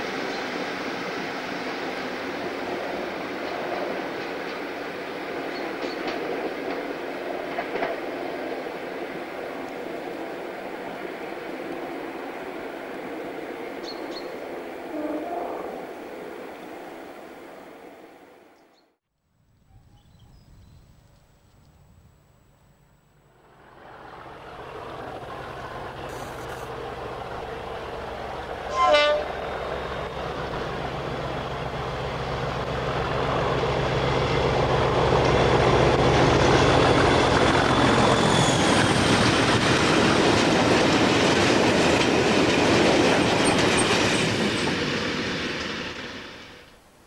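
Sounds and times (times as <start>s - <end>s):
diesel locomotive engine: 0.0s - 18.5s, 21.4s - 47.0s
train horn blast: 14.8s - 15.9s, 28.7s - 29.4s.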